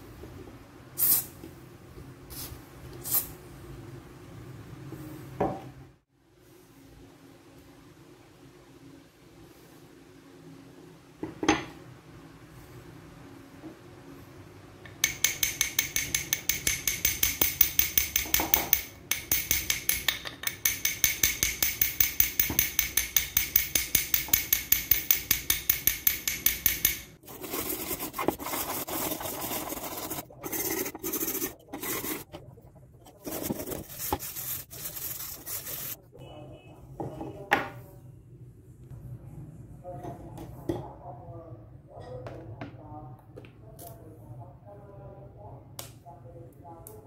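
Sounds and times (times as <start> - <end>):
hammer tapping metal spanner: 14.9 - 27.2.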